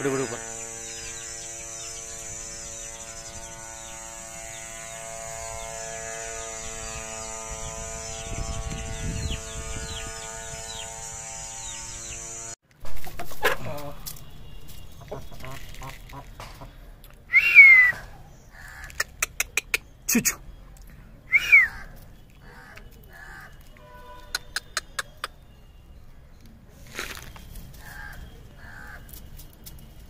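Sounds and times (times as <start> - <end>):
steady machine hum: 0.0 - 12.6
small birds chirping: 0.0 - 30.0.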